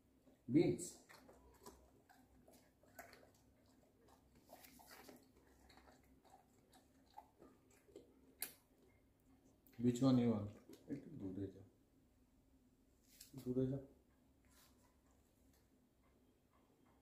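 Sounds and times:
dog chewing crunchy bean: 0.8s - 8.9s.

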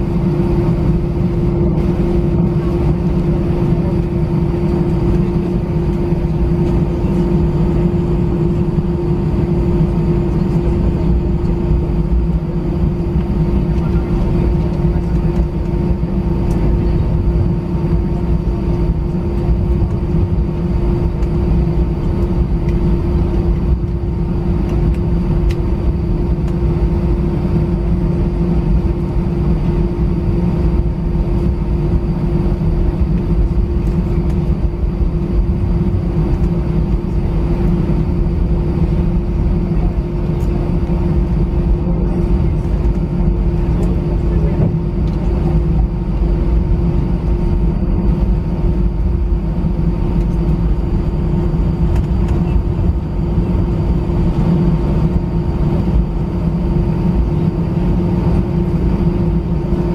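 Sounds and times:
airliner engine drone: 0.0s - 59.9s
constant hum: 0.0s - 59.9s
heavy low rumble: 0.0s - 59.9s.

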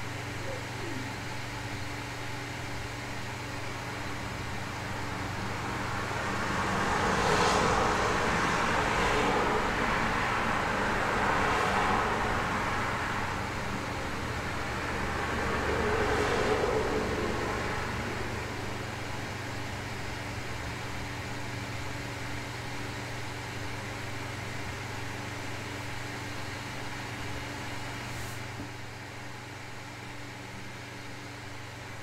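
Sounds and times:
low room hum and hiss: 0.0s - 32.0s
car passing: 5.6s - 19.5s.

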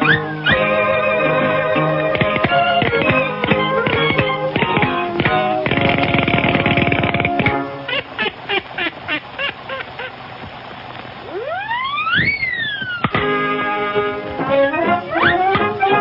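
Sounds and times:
fast banjo strumming: 2.0s - 7.7s
whistling tone gliding: 11.3s - 13.1s, 14.6s - 16.0s
squeaky comic notes: 14.5s - 16.0s.

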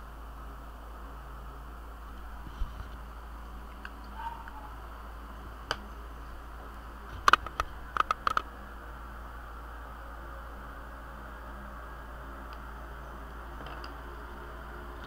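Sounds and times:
low hum: 0.0s - 15.0s
steady hiss: 0.0s - 15.0s
sharp clicks: 7.2s - 8.5s.

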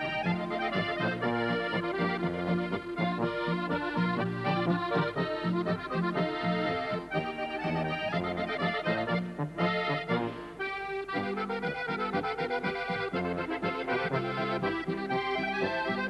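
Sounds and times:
accordion playing folk tune: 0.0s - 16.0s.

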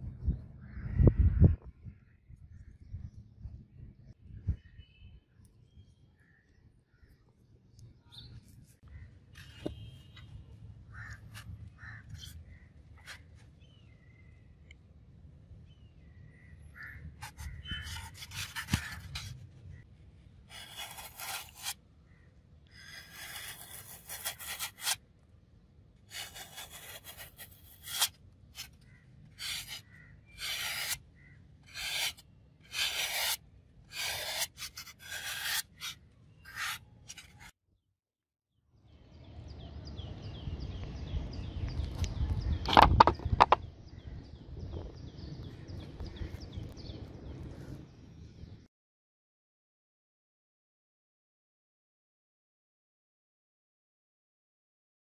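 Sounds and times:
knife scraping through foam: 17.2s - 19.4s, 20.5s - 21.8s, 22.8s - 25.0s, 26.1s - 31.0s, 31.6s - 37.5s.

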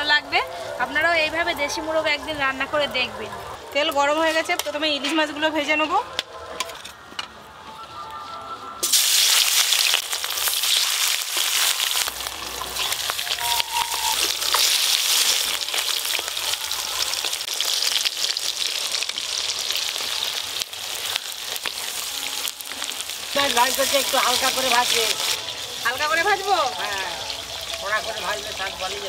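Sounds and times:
fish frying in hot oil: 8.8s - 29.0s.

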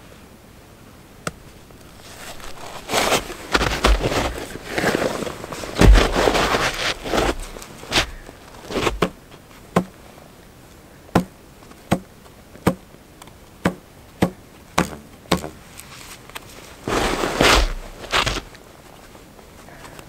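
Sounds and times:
rustling: 1.3s - 10.3s, 14.7s - 20.0s.

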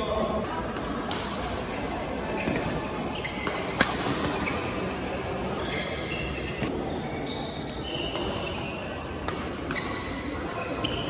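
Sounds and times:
din of sports hall: 0.0s - 11.0s
shoes squeaking on court: 2.3s - 11.0s.

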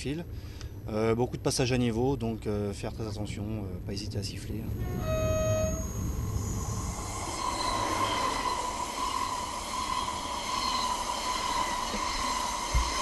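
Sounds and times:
high whine: 4.2s - 13.0s
train wheels rushing on rail: 4.7s - 13.0s.

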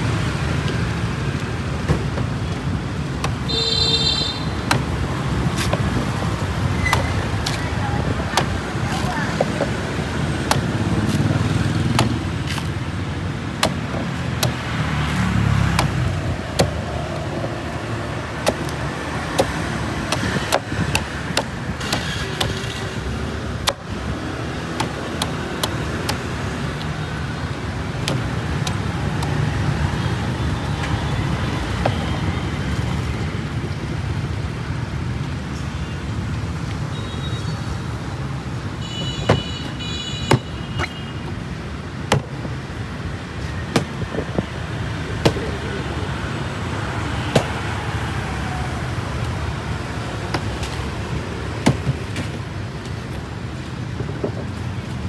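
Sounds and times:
street traffic rumble: 0.0s - 55.0s
knife chopping coconut husk: 4.6s - 5.0s, 8.3s - 9.8s, 10.4s - 12.7s, 13.5s - 14.7s, 15.7s - 17.6s, 18.4s - 22.6s, 23.5s - 23.9s, 28.0s - 29.4s.

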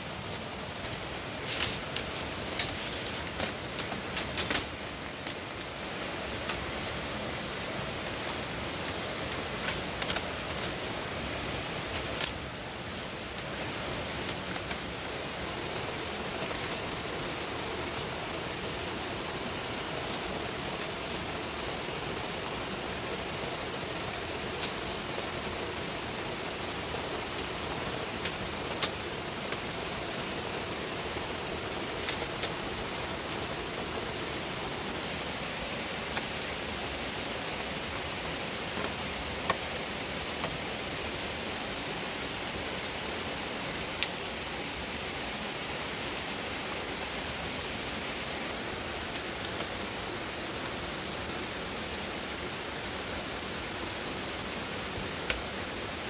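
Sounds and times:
outdoor hiss: 0.0s - 56.0s.

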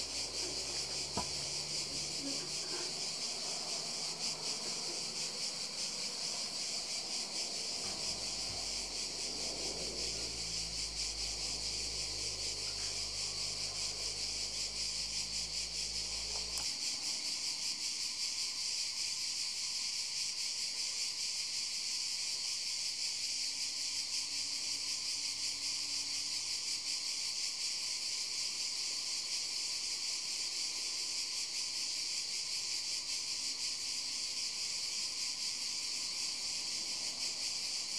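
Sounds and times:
high-pitched insect trilling: 0.0s - 37.9s.

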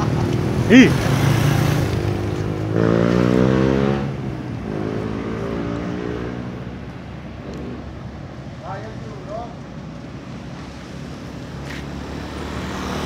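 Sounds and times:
vehicle engine passing: 0.0s - 6.9s.

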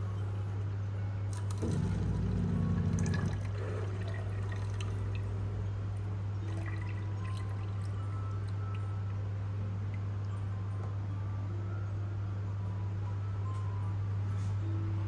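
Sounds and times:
steady low hum: 0.0s - 15.0s
dispenser pump buzzing: 1.3s - 11.0s
drink pouring into cup: 1.4s - 5.5s, 6.4s - 9.1s
drips: 1.5s - 9.2s.

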